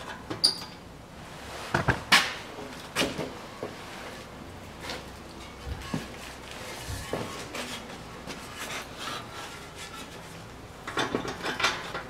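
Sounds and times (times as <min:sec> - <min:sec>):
metal exhaust pipes scraping: 0:04.8 - 0:10.5.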